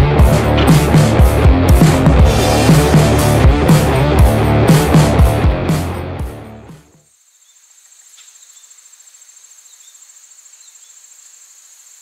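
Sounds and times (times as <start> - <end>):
rock music: 0.0 - 7.0
insect trill: 7.0 - 12.0.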